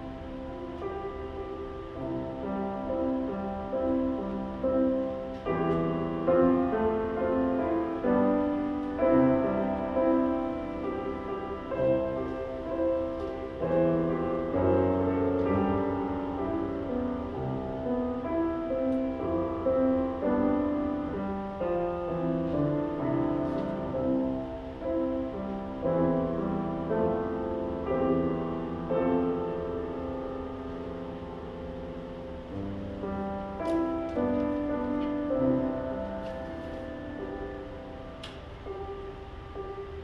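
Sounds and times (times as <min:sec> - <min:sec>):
slow piano music: 0:00.0 - 0:40.0.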